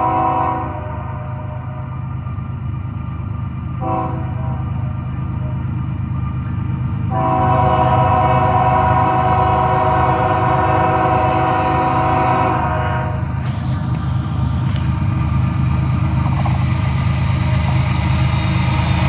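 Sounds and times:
locomotive air horn: 0.0s - 1.9s, 3.8s - 4.8s, 7.1s - 13.7s
train rumbling: 0.0s - 19.0s.

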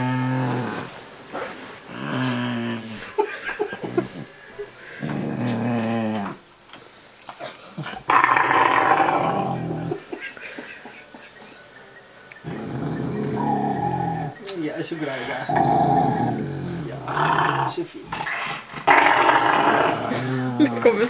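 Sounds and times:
dog grumbling: 0.0s - 1.0s, 1.9s - 4.4s, 5.0s - 6.4s, 7.4s - 10.2s, 12.4s - 14.4s, 15.0s - 21.0s.

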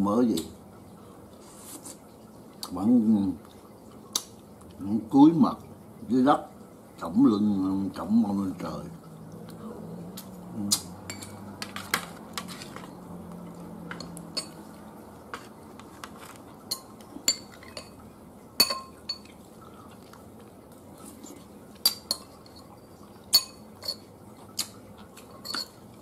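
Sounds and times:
spoons clinking on ceramic plates: 11.0s - 13.0s, 13.8s - 18.0s, 18.6s - 19.4s, 21.8s - 24.1s, 25.2s - 25.8s.

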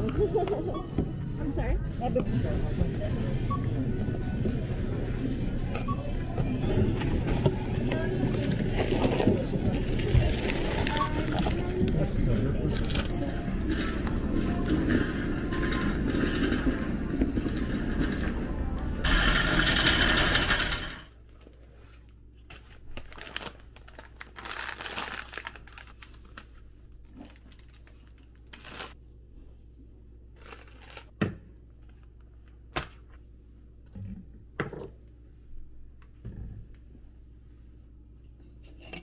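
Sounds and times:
supermarket noise: 1.6s - 29.0s, 30.3s - 33.2s
plastic bags rustling: 7.0s - 15.8s, 22.4s - 29.0s, 30.4s - 31.1s
plastic packages crinkling: 8.3s - 12.0s, 22.5s - 29.0s, 30.4s - 31.1s.

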